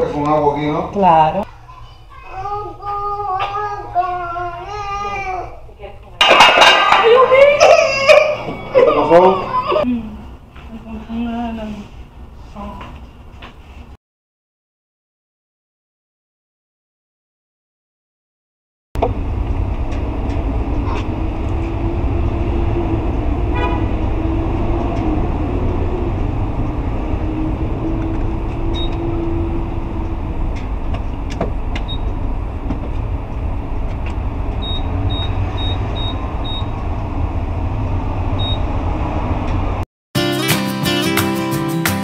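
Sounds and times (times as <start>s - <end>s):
traffic and engines rumbling: 0.0s - 14.0s, 19.0s - 39.8s.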